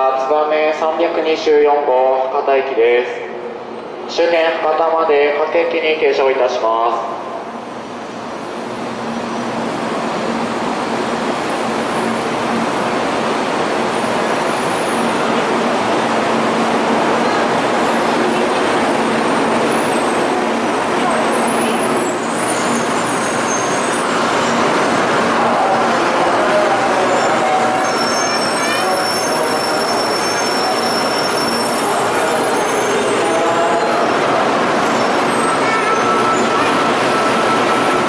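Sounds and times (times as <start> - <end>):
train pulling into station: 0.0 - 38.0
braking wheels squealing: 21.3 - 24.6, 27.8 - 33.3, 34.8 - 38.0.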